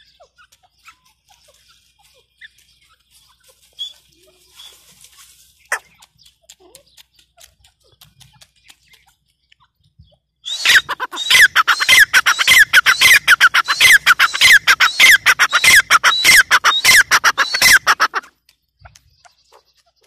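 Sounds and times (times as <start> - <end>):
francolin calling: 10.4 - 18.2.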